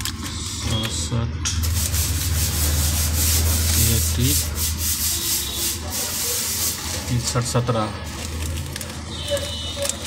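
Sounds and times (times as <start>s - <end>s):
rubbing and rustling: 1.6s - 7.3s.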